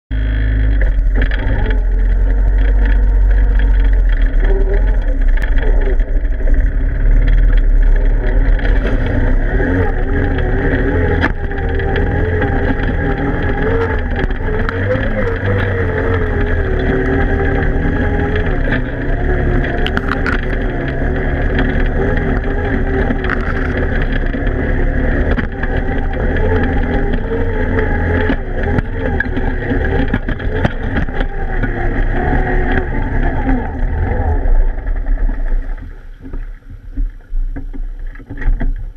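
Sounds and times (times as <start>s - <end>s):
atv engine running: 0.1s - 38.9s
breaking ice and water: 0.7s - 26.1s.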